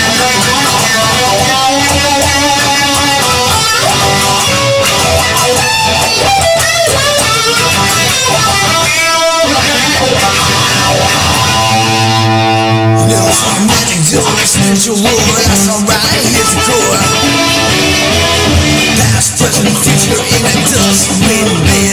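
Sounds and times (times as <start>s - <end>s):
rock guitar music: 0.0s - 21.9s.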